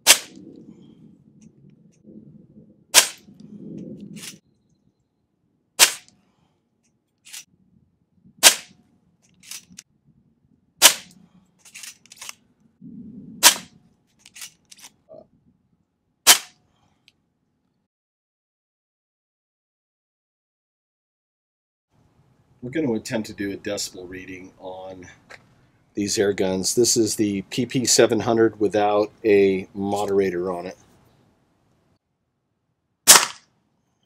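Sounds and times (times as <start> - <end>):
air pistol shots: 0.0 - 0.4, 2.9 - 3.2, 5.8 - 6.1, 8.4 - 8.8, 10.8 - 11.2, 13.4 - 13.7, 16.2 - 16.6, 33.0 - 33.5.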